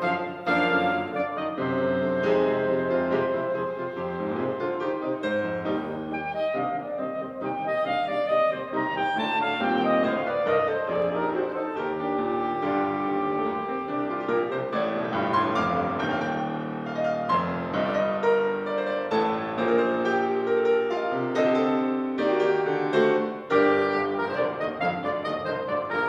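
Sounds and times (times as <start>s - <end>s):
soprano saxophone: 0.0s - 4.7s, 6.1s - 14.6s, 23.5s - 26.0s
grand piano: 0.0s - 26.0s.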